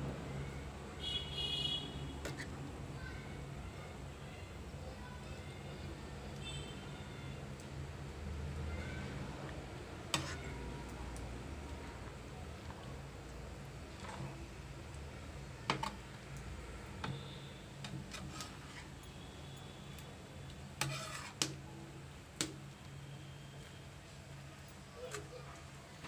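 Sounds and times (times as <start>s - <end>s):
spatula scraping pan: 2.2s - 2.6s, 10.1s - 10.6s, 17.8s - 19.0s, 20.8s - 21.4s.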